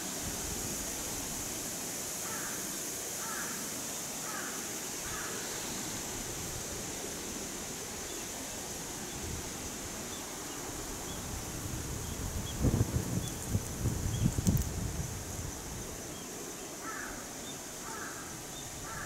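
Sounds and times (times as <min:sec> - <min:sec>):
steady high hiss: 0:00.0 - 0:19.0
crow cawing faintly: 0:02.2 - 0:02.6, 0:03.2 - 0:03.6, 0:04.2 - 0:05.5, 0:16.8 - 0:19.0.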